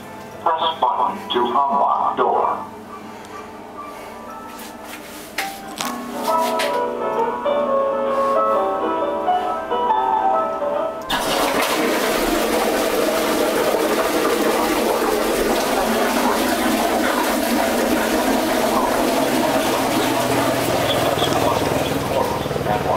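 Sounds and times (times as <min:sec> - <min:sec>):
music playing: 0:00.4 - 0:12.1
toilet flushing: 0:11.1 - 0:22.9.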